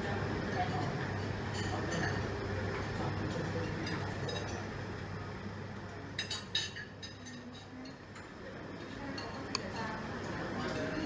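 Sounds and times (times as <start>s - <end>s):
dining room hum: 0.0s - 11.0s
cutlery and glass clinking: 1.4s - 4.7s, 6.2s - 8.3s.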